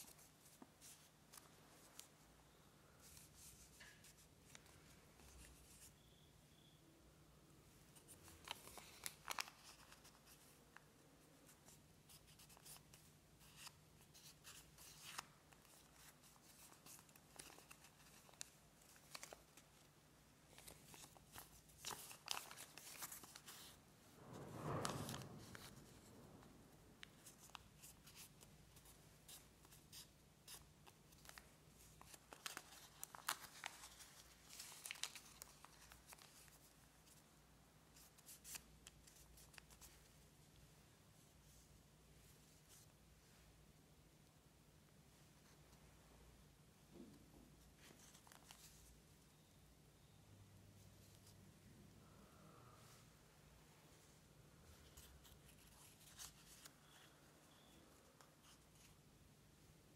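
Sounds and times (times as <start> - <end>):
paper rustling and crackling: 8.0 - 10.6, 11.4 - 19.9, 20.5 - 37.3, 47.8 - 48.9, 54.8 - 59.0
soft rush of sound: 23.7 - 27.6, 51.6 - 54.8.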